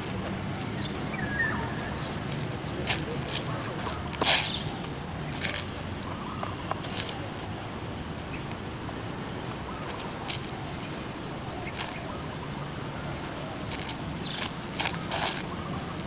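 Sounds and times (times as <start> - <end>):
high insect-like whine: 0.0 - 16.0
outdoor background hiss: 0.0 - 16.0
shoes scuffing on concrete: 2.2 - 7.6, 13.6 - 16.0.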